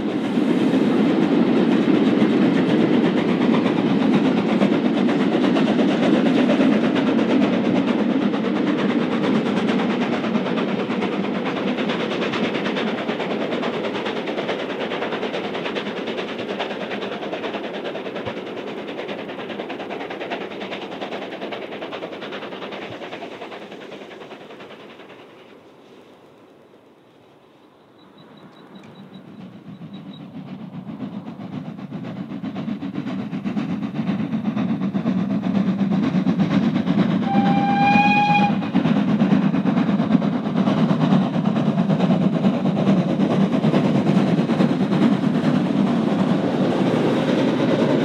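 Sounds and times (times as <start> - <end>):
steam locomotive running: 0.0 - 48.0.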